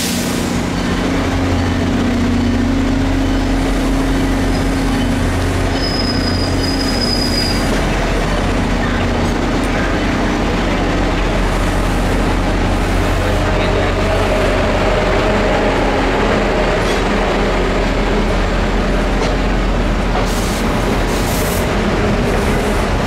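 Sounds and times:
train running drone: 0.0 - 23.0
high wheel squeal: 4.4 - 7.8.

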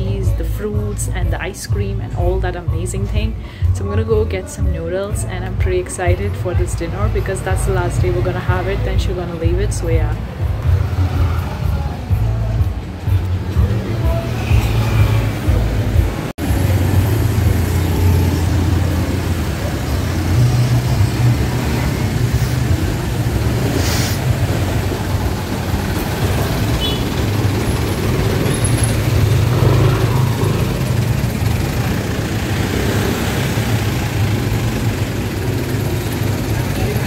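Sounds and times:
cars and motorbikes passing: 0.0 - 37.0
brief hiss: 23.8 - 24.2.

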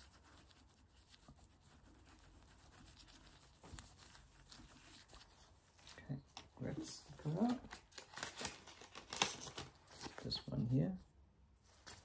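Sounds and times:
packaging clicks and rustles: 7.2 - 10.3.

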